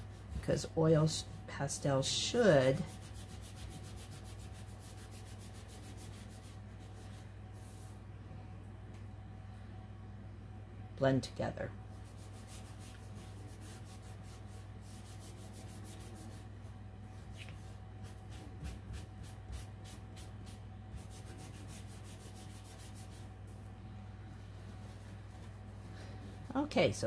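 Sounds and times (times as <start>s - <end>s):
paper towel rubbing on paper: 2.6s - 8.0s, 11.9s - 16.6s, 17.2s - 23.6s.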